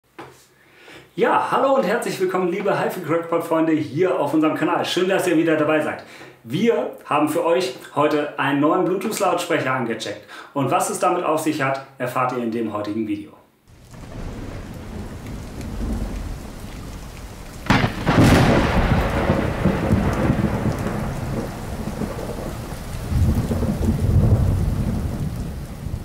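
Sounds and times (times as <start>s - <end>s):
rain hiss: 13.7s - 26.0s
thunderclap: 13.7s - 26.0s
low rumble of thunder: 13.8s - 26.0s.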